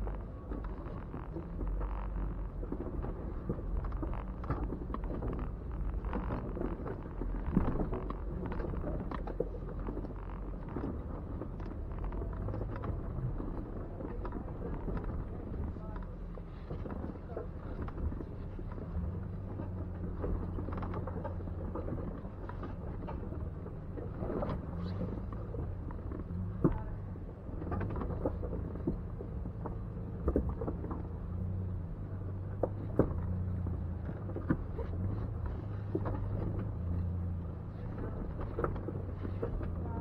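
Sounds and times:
engine running at low revs: 0.0s - 40.0s
rocks knocking under tyres: 0.0s - 40.0s.

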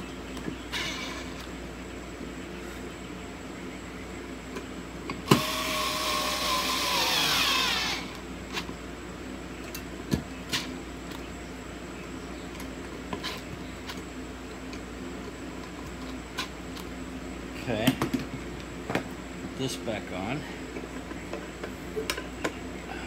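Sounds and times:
electric screwdriver whining: 5.3s - 8.2s.

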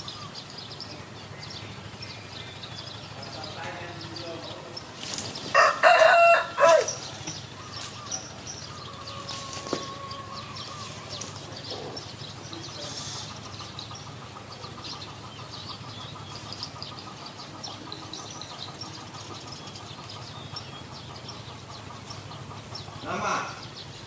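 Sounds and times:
low background hum: 0.0s - 24.0s
small birds chirping: 0.0s - 24.0s
rooster crowing: 5.5s - 7.2s, 8.7s - 11.2s.

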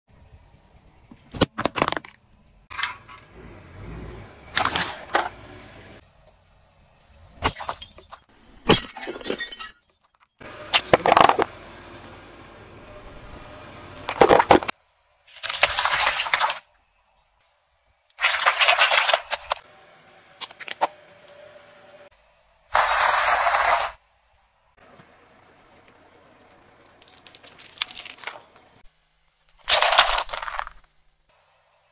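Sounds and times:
car tyre crushing objects: 10.4s - 11.7s, 14.0s - 16.7s, 24.8s - 28.9s, 29.5s - 31.0s.

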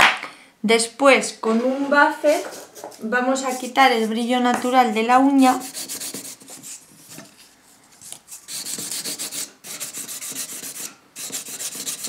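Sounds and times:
nail buffer rubbing a fingernail: 5.6s - 6.8s, 8.5s - 12.0s.

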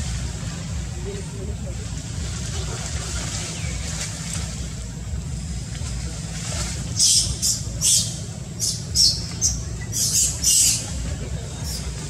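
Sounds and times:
low rumble: 0.0s - 12.0s
young monkey squealing: 7.0s - 11.0s.

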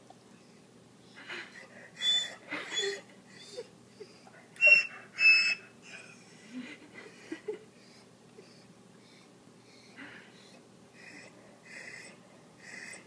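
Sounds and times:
dog whining: 1.5s - 6.4s, 10.4s - 13.0s.

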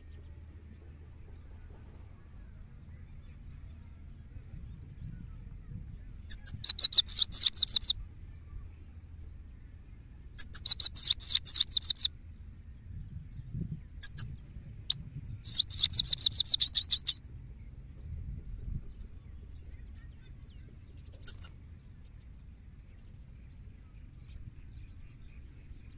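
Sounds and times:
goldfinch twittering song: 6.3s - 8.0s, 10.4s - 12.1s, 14.0s - 17.2s, 19.6s - 21.6s.

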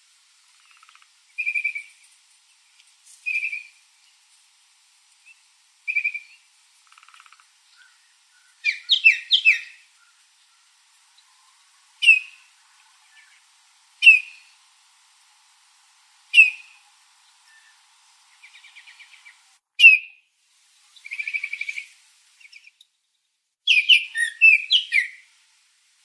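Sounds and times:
bird whistled notes: 1.4s - 1.9s, 3.3s - 3.7s, 8.6s - 9.8s, 12.0s - 12.4s, 14.0s - 14.5s, 16.4s - 16.8s, 19.8s - 20.2s, 23.7s - 25.2s
bird call notes: 3.3s - 3.8s, 7.8s - 10.2s, 12.0s - 12.5s, 14.0s - 14.5s, 16.3s - 16.8s, 23.7s - 25.2s.

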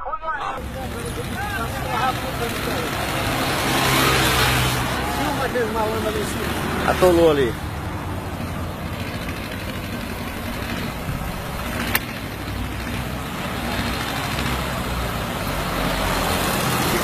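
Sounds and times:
truck engine rumbling: 0.0s - 17.0s.

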